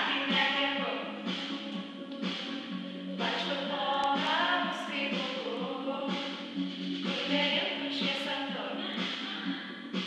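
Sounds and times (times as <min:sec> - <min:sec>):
song playing: 0:00.0 - 0:10.0.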